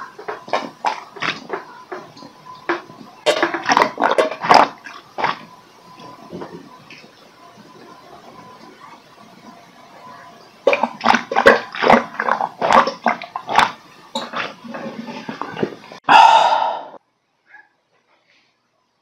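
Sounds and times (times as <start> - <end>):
water gurgling in bottle: 0.0 - 7.1, 10.5 - 17.0
person gulping water: 0.1 - 7.0, 10.6 - 17.0
loud breathy exhale: 16.1 - 17.0.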